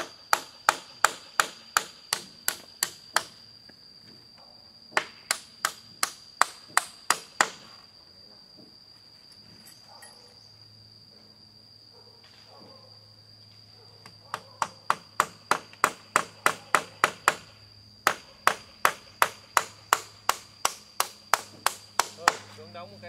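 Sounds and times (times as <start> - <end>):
hammer striking nails into wood: 0.0 - 3.4, 5.0 - 7.7, 14.3 - 22.5.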